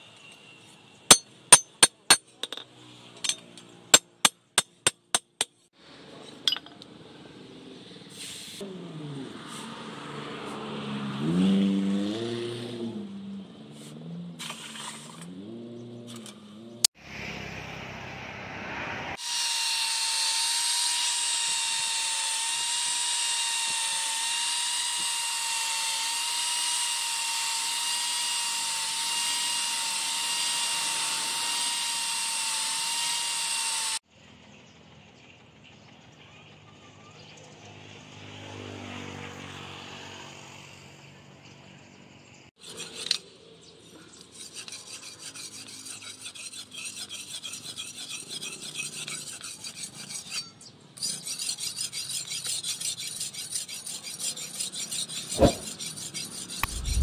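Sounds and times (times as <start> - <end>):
blade rasping on sharpening stone: 1.1 - 2.6, 42.6 - 43.3, 44.1 - 57.0
angle grinder high whine: 19.0 - 34.0.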